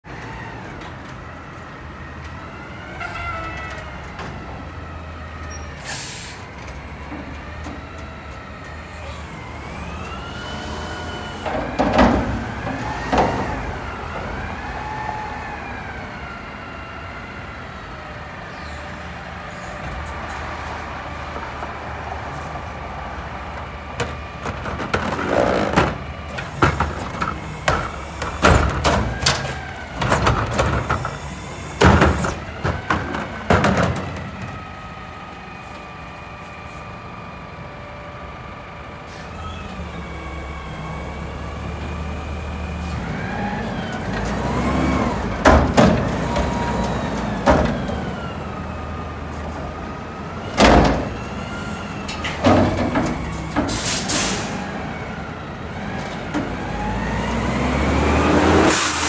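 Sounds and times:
hydraulics whining: 2.2s - 59.0s
carts clanking and banging: 11.1s - 14.4s, 23.5s - 34.7s, 42.9s - 48.2s, 50.4s - 54.6s
truck engine revving: 39.8s - 59.0s.

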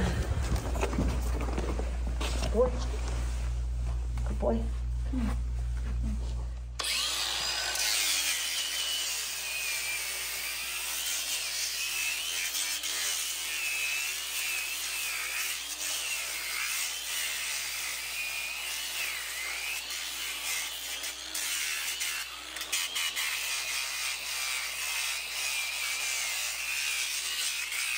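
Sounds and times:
angle grinder sanding hoof: 6.8s - 27.9s.

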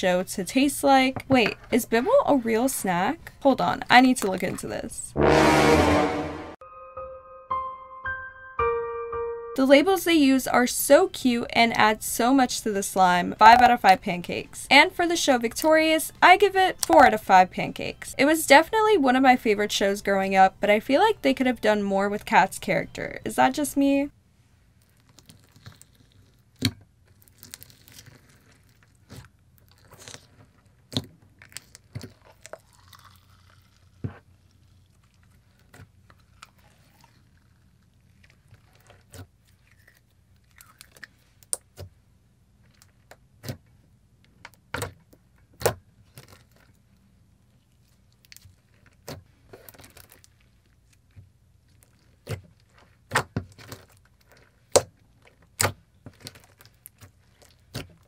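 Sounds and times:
slime squishing: 24.8s - 42.0s, 45.6s - 58.0s.

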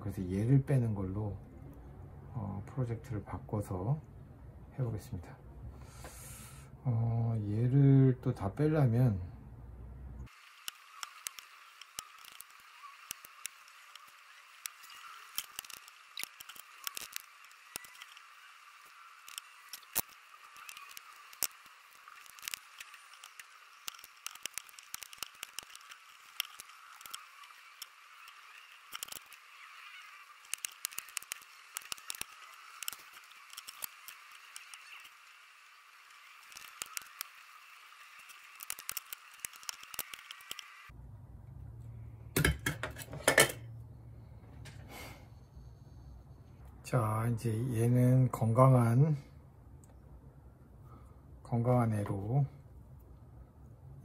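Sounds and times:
solder sucker snapping: 30.4s - 35.0s, 38.6s - 40.7s.

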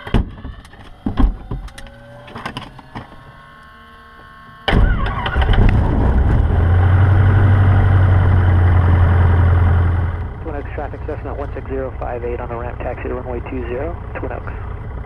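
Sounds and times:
aircraft engine starting and idling: 0.0s - 15.0s.

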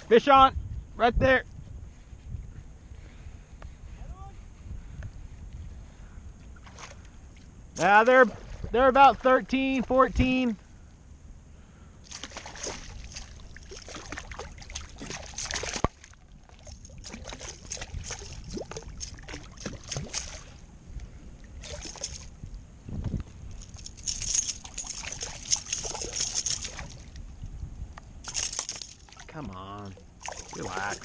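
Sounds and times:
water sloshing against hull: 5.8s - 10.6s, 12.0s - 31.0s
fish splashing and thrashing: 7.8s - 8.8s, 12.0s - 20.7s, 21.4s - 22.4s, 23.5s - 27.3s, 28.2s - 31.0s.

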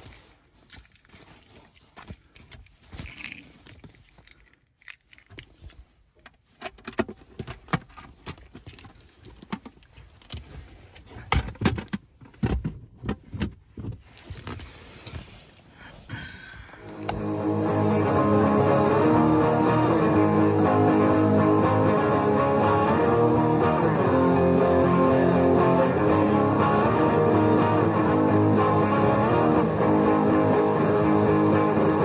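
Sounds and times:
handling rustling: 0.0s - 17.1s.

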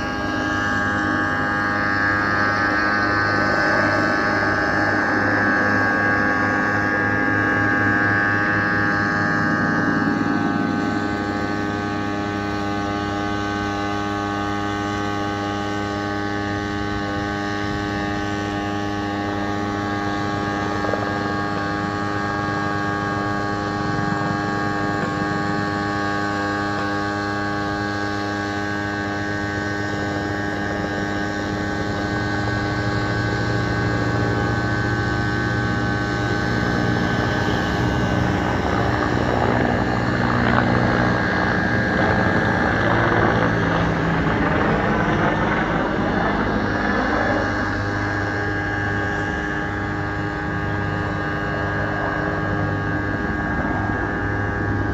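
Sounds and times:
helicopter drone: 0.0s - 54.9s.

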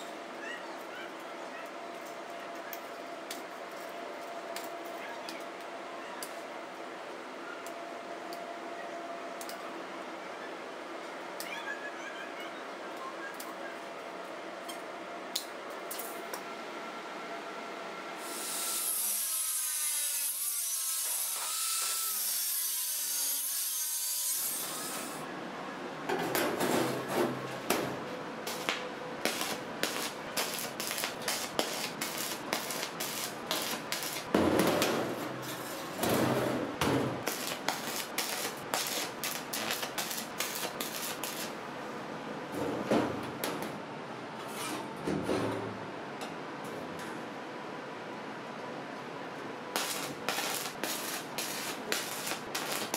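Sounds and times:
stick welder crackling and popping: 18.3s - 25.2s, 28.4s - 36.1s, 36.9s - 41.6s, 49.7s - 52.9s
steady hiss: 49.8s - 52.9s.

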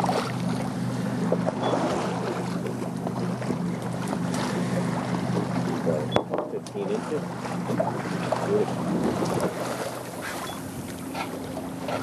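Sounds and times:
water noise: 0.0s - 12.0s
wind: 0.0s - 12.0s.

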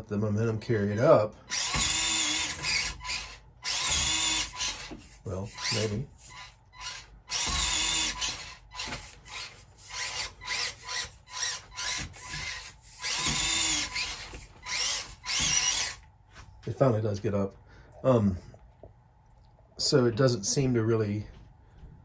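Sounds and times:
small electric motor whining: 1.5s - 16.0s.

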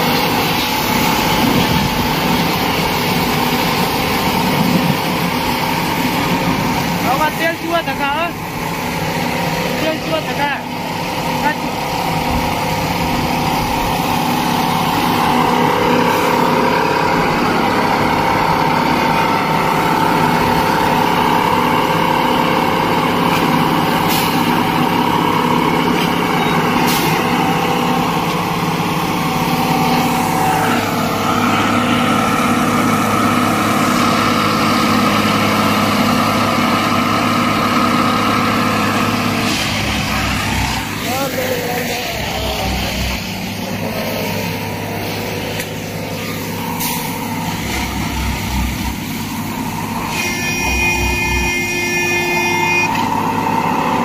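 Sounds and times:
machine engine and hydraulic drone: 0.0s - 54.0s
short high hisses: 24.0s - 24.5s, 44.0s - 48.2s.

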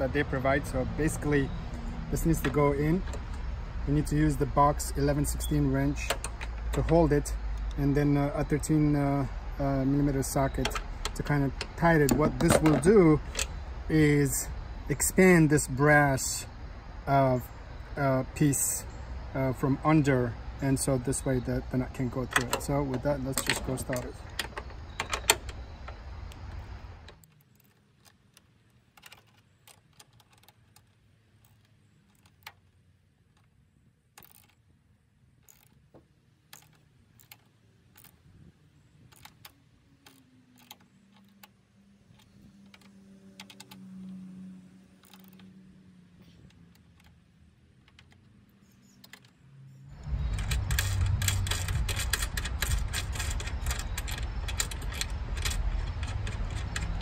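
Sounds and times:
ratchet clicking: 5.0s - 13.6s, 34.2s - 34.6s, 35.4s - 35.8s, 36.5s - 38.2s, 39.0s - 44.2s, 45.0s - 45.6s, 50.0s - 57.0s.

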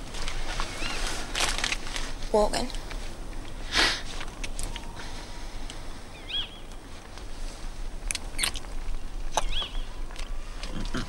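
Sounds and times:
bird chirping: 6.1s - 6.8s, 9.3s - 11.0s.

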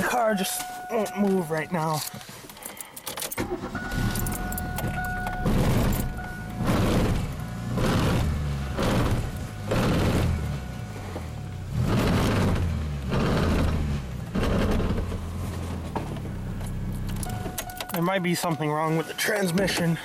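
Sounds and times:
car engine revving: 3.4s - 17.9s
rough grinding noise: 5.4s - 10.7s.

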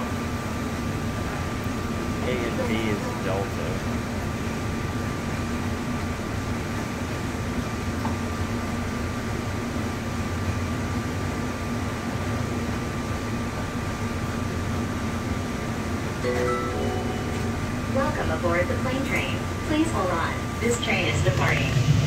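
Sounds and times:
steady hum: 16.2s - 22.0s.

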